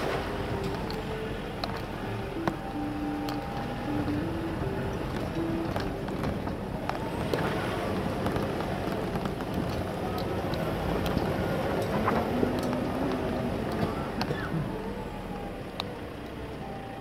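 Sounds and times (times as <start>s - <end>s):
vehicle engine and tyre noise: 0.0s - 17.0s.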